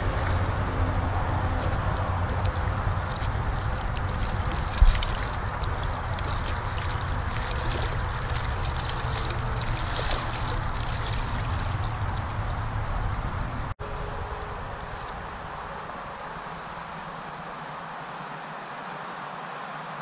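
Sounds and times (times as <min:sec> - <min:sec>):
stream running: 0:00.0 - 0:20.0
fish splashing at surface: 0:03.0 - 0:12.6.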